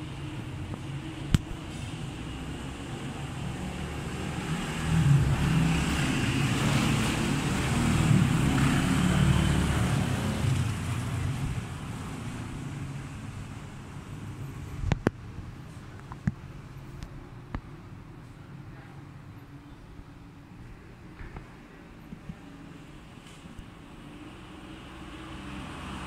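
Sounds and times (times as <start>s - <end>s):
motor vehicle passing by: 1.6s - 13.4s, 24.1s - 26.0s.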